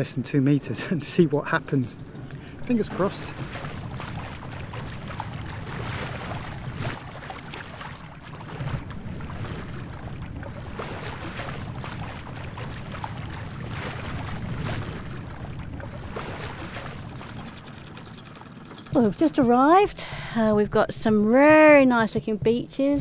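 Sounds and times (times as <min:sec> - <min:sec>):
boat engine drone: 0:00.0 - 0:23.0
water noise: 0:00.0 - 0:23.0
wind: 0:00.0 - 0:23.0.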